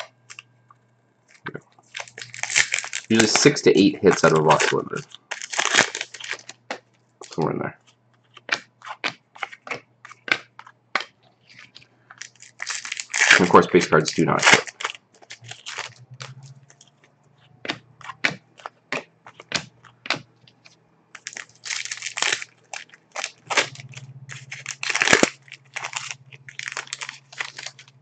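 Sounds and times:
cards rustling: 0:01.3 - 0:28.0
trading cards snapping and clicking: 0:08.4 - 0:11.1, 0:17.6 - 0:27.9
faint low hum: 0:09.8 - 0:28.0.

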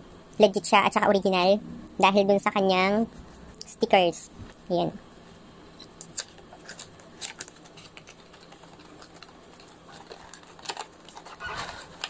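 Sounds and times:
cardboard packaging handled: 0:06.2 - 0:12.0.

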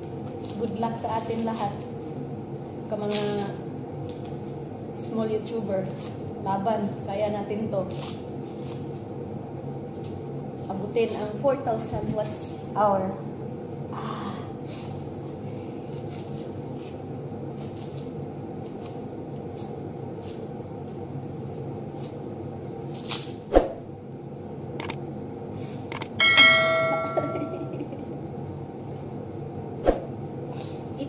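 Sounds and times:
knife peeling dry onion skins: 0:00.0 - 0:02.2, 0:02.9 - 0:04.5, 0:05.7 - 0:09.1, 0:15.8 - 0:23.4
steady background hum: 0:00.0 - 0:31.0
bright metallic ring: 0:26.0 - 0:28.0.

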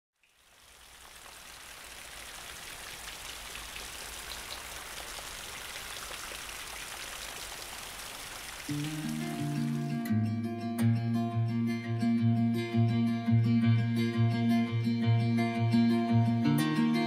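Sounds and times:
steady rain falling: 0:00.2 - 0:10.0.

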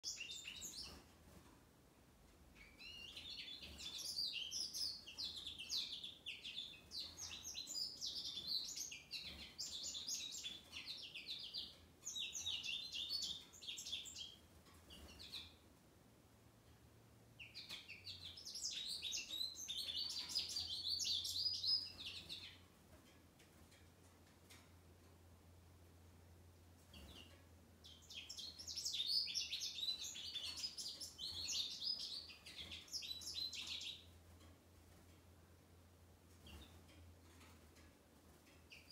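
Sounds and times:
goldfinch twittering song: 0:00.0 - 0:01.0, 0:02.6 - 0:15.6, 0:17.4 - 0:22.7, 0:26.9 - 0:34.1, 0:38.5 - 0:38.9.

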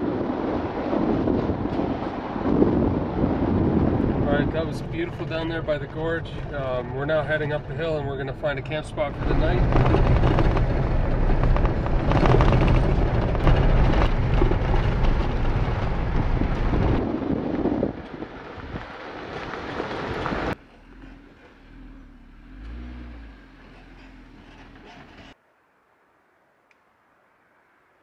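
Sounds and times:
car engine rumble: 0:00.0 - 0:25.4
tyres on gravel: 0:04.4 - 0:25.4.

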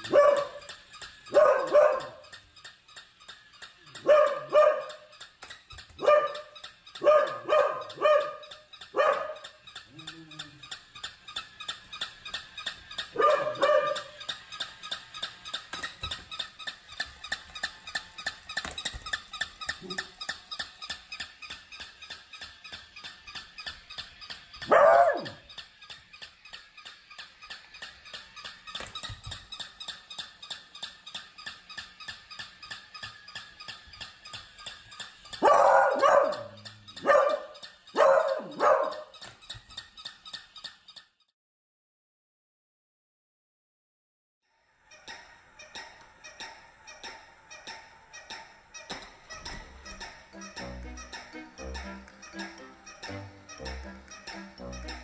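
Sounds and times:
dog barking: 0:00.0 - 0:00.7, 0:01.3 - 0:02.2, 0:04.0 - 0:05.1, 0:06.0 - 0:09.6, 0:13.1 - 0:14.2, 0:24.6 - 0:25.4, 0:35.4 - 0:39.2
fast even ticking: 0:00.0 - 0:41.0, 0:45.6 - 0:55.0.

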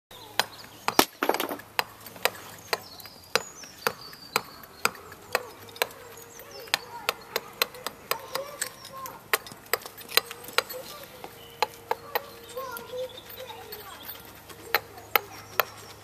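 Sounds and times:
mallet striking chisel on stone: 0:00.4 - 0:12.4.

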